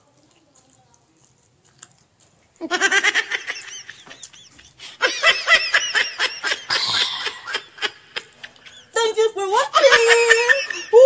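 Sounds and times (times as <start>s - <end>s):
high-pitched laughter: 2.6s - 11.0s.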